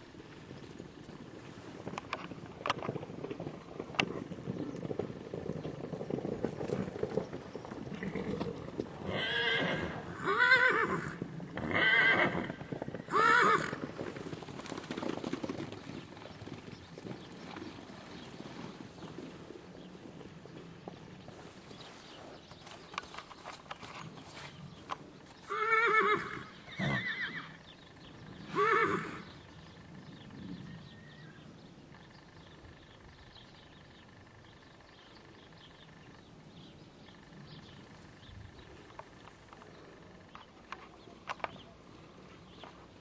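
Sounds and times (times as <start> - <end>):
hoofbeats galloping on grass: 0.0 - 43.0
horse whinnying: 8.0 - 13.8, 25.5 - 27.6, 28.4 - 29.3.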